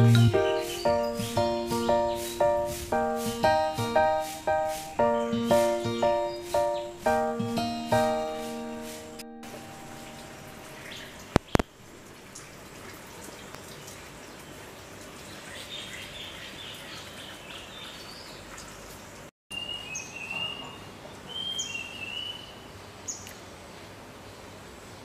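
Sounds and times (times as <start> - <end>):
small birds chirping: 0.0 - 11.7, 15.2 - 24.5
steady background hiss: 0.0 - 12.8.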